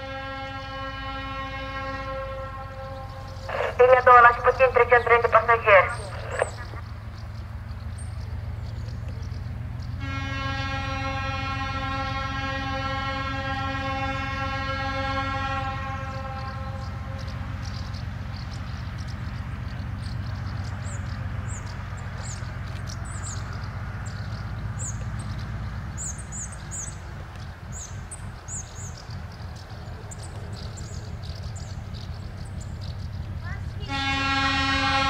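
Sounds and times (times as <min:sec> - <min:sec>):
locomotive horn: 0:00.0 - 0:06.8, 0:10.0 - 0:18.6, 0:33.7 - 0:35.0
distant diesel locomotive throb: 0:00.0 - 0:35.0
birds chirping: 0:00.1 - 0:35.0.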